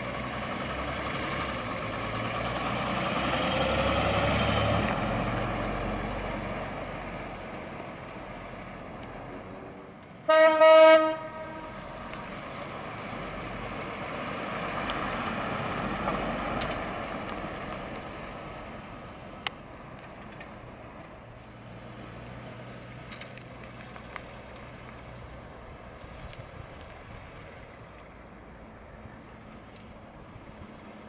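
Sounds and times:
car driving by slowly: 0.0 - 31.0
tyres on asphalt: 0.0 - 31.0.

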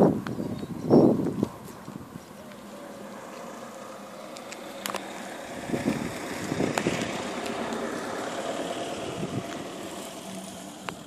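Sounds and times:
car driving by: 2.3 - 11.0.

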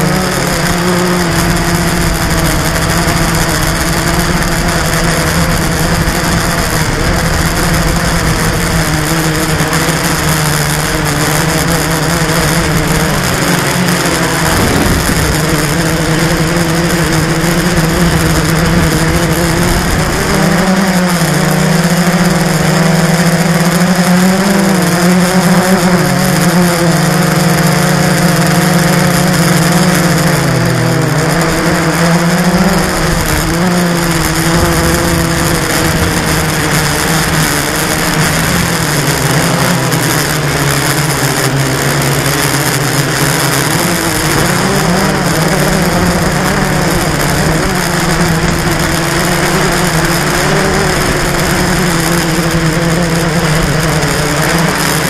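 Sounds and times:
drone motors whining: 0.0 - 55.0.

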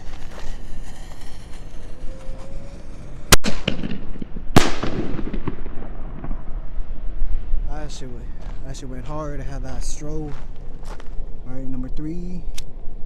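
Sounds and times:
firework booms: 3.3 - 7.6.

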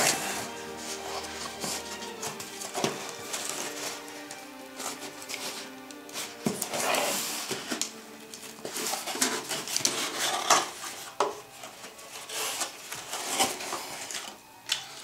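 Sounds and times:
cardboard scraping and rustling: 0.0 - 14.4
small hard items rattling: 0.0 - 15.0.

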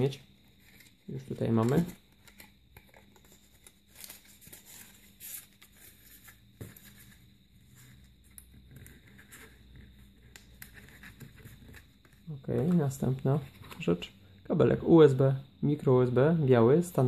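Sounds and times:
paper and cardboard rustling: 0.5 - 8.1.

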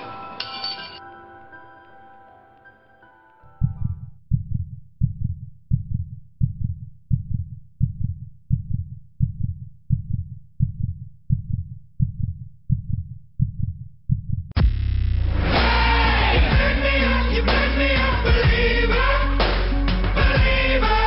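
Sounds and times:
heartbeat double thump: 3.6 - 15.5.

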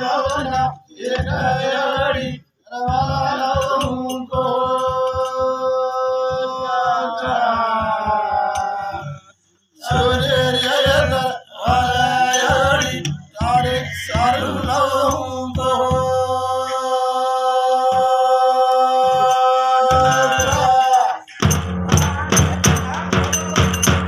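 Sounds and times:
men singing a devotional chant: 0.0 - 24.0
large drums beating: 9.9 - 16.7, 19.1 - 24.0.

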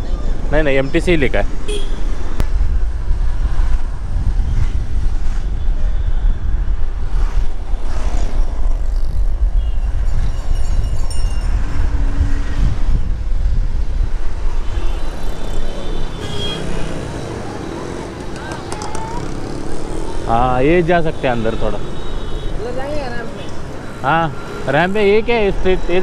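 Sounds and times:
city road traffic: 0.0 - 26.0
vehicles passing close by: 0.0 - 26.0
wind rumble on microphone: 2.4 - 16.2.

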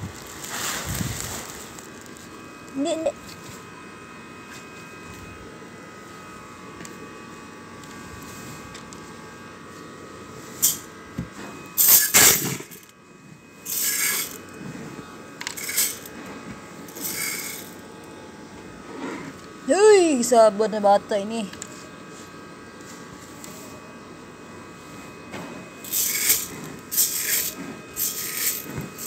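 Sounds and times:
dry grains rattling and hissing: 0.0 - 2.4, 11.8 - 12.9, 13.6 - 16.1, 16.8 - 17.8, 25.8 - 29.0
faint steady hum: 0.0 - 29.0.

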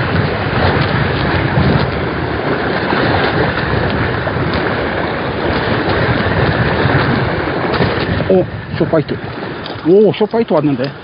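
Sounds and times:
sea washing against rocks: 0.0 - 11.0
wind buffeting microphone: 0.0 - 11.0.

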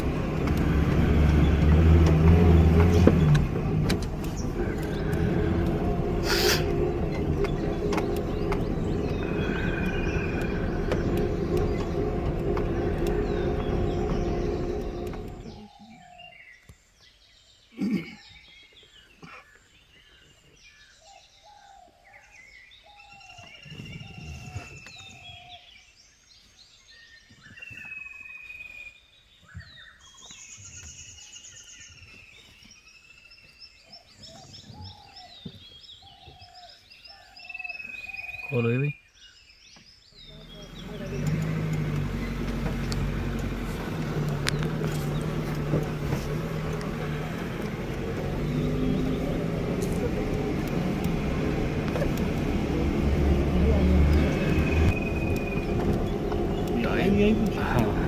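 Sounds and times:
jeep driving on dirt track: 0.0 - 16.5, 39.6 - 58.0
birds chirping and whistling: 0.0 - 58.0.

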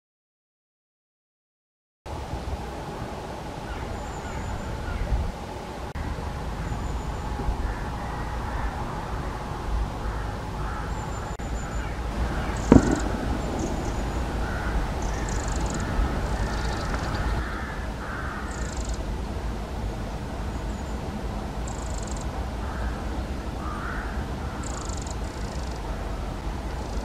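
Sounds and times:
steady low rumble: 2.1 - 27.0
other birds calling: 3.7 - 5.2, 10.0 - 19.1, 21.6 - 26.1, 26.7 - 27.0
wren short high calls: 10.1 - 19.0, 21.7 - 23.0, 23.6 - 25.8
sharp knock: 12.6 - 15.9.

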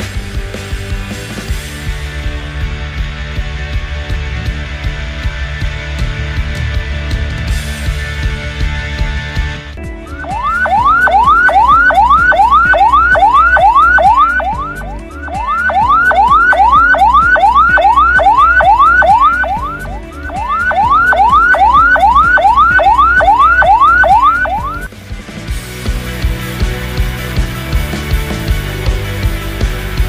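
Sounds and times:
ambulance siren rising sweeps: 10.0 - 24.9.

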